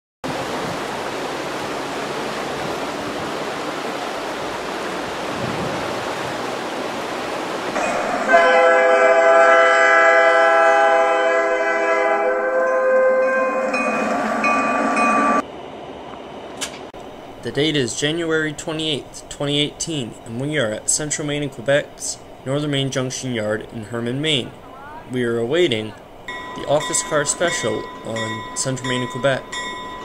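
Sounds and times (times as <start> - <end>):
locomotive air horn chord: 7.8 - 15.4.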